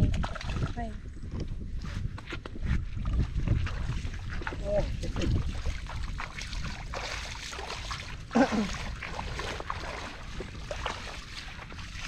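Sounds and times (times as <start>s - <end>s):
water splashing and trickling: 0.0s - 1.1s, 2.9s - 12.0s
wind rumble on microphone: 0.0s - 12.0s.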